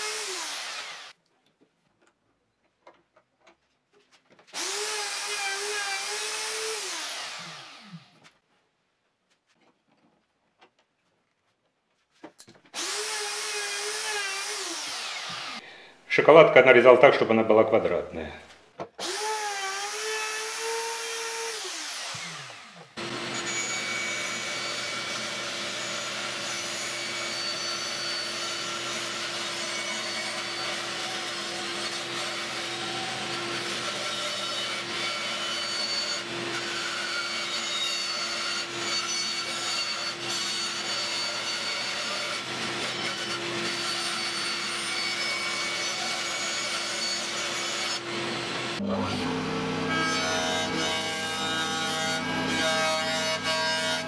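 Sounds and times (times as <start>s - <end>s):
band saw cutting wood: 0.0s - 1.2s, 4.6s - 8.2s, 12.7s - 15.8s, 19.0s - 54.0s
router whine: 0.0s - 1.2s, 4.6s - 8.3s, 12.8s - 15.6s, 19.0s - 54.0s.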